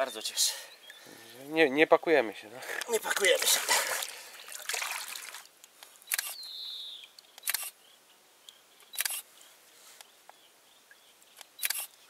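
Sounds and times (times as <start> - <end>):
camera shutter clicks: 6.1 - 6.4, 7.4 - 7.8, 8.9 - 9.2, 11.5 - 11.9.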